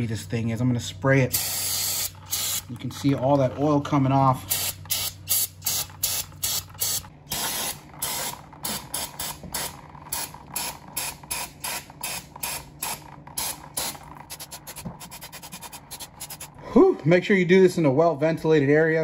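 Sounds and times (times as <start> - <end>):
aerosol spray hissing bursts: 1.4 - 2.6, 13.8 - 16.5.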